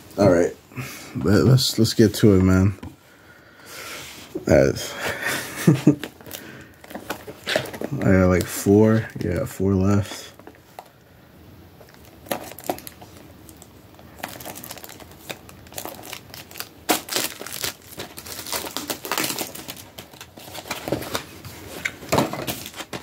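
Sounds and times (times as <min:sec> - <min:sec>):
foil wrapper crinkling: 0:11.8 - 0:23.0.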